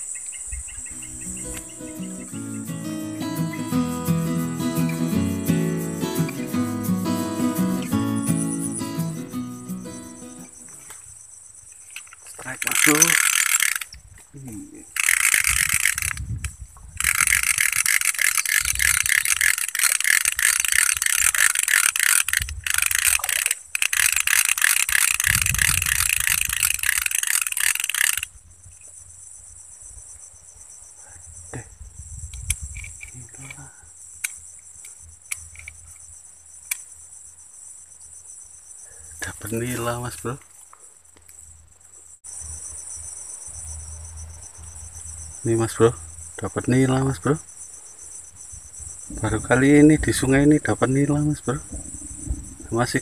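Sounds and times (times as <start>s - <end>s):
insect chorus: 0.0s - 53.0s
fishing reel whirring: 12.7s - 14.0s, 14.9s - 16.2s, 17.0s - 28.3s.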